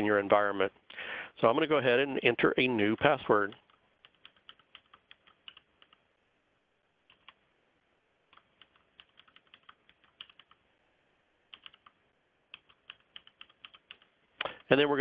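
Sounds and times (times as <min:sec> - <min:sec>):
faint keyboard typing: 0:03.2 - 0:06.1, 0:07.0 - 0:07.5, 0:08.3 - 0:10.7, 0:11.5 - 0:14.9.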